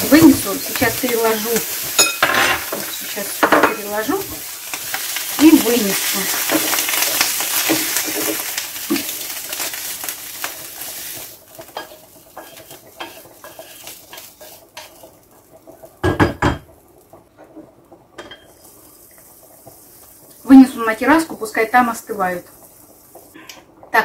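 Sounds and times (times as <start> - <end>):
mushrooms sizzling in a frying pan: 0.0 - 24.0
spatula scraping and clinking: 1.8 - 2.9, 11.7 - 15.0.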